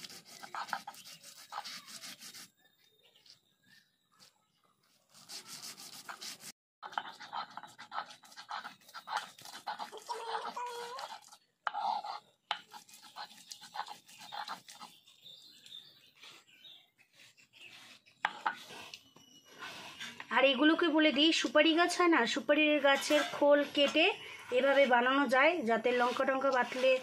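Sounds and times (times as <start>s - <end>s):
stone roller grinding lentils: 5.4s - 15.0s, 22.6s - 27.0s.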